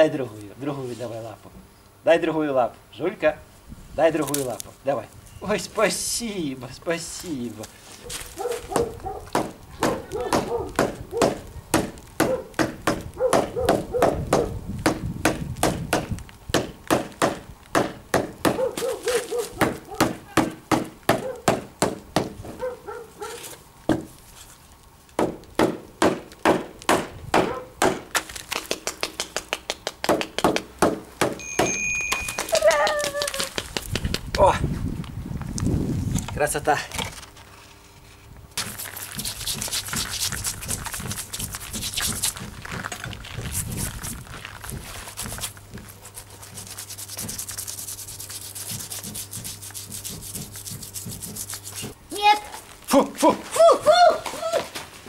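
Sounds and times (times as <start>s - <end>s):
scraping charred hide: 4.2s - 14.5s, 15.4s - 21.5s, 22.2s - 25.6s, 35.9s - 53.6s.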